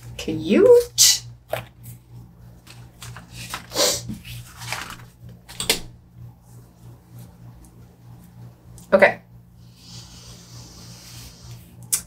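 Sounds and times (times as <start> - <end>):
steady low hum: 0.0 - 12.0
sticker paper rustling and sliding: 2.7 - 5.1.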